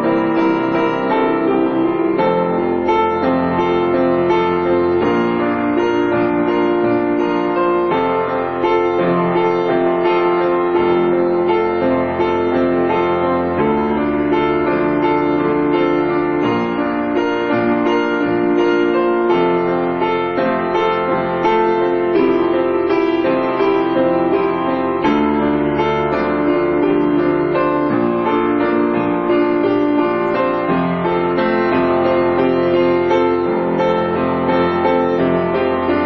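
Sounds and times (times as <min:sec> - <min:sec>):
piano chords: 0:00.0 - 0:36.0.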